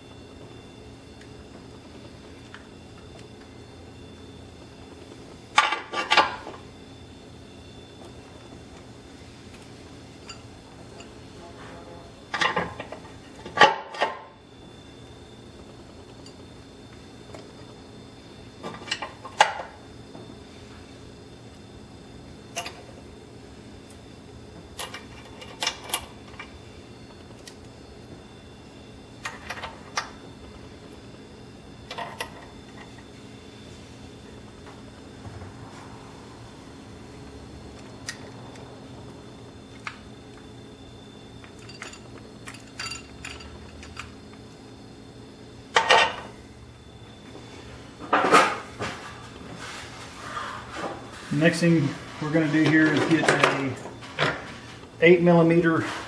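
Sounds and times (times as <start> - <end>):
metal parts clicking and clinking: 41.4 - 44.1.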